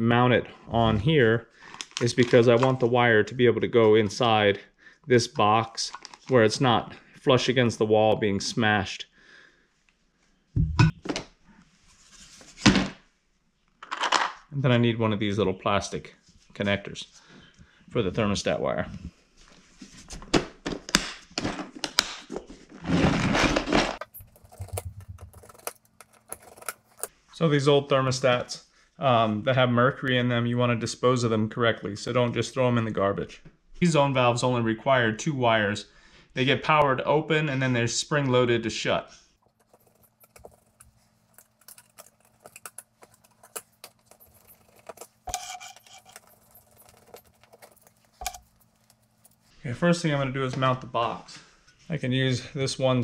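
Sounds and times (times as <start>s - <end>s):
rattling clatter of fittings: 24.0s - 27.1s, 39.5s - 49.5s
small metallic clicks and clinks: 39.4s - 49.5s.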